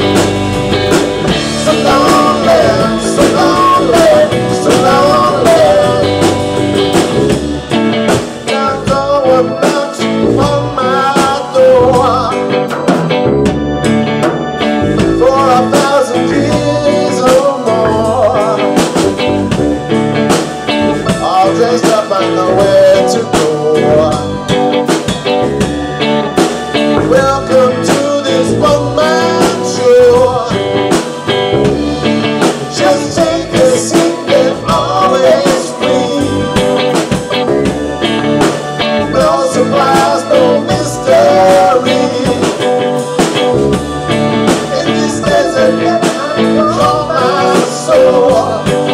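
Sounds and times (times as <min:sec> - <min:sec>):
drum beat: 0:00.0 - 0:09.1, 0:24.9 - 0:28.8
strummed electric guitar: 0:00.0 - 0:48.9
man singing: 0:01.3 - 0:07.2, 0:08.4 - 0:12.8, 0:15.0 - 0:19.4, 0:21.0 - 0:24.6, 0:26.9 - 0:31.2, 0:32.3 - 0:37.4, 0:38.8 - 0:43.0, 0:44.5 - 0:48.9.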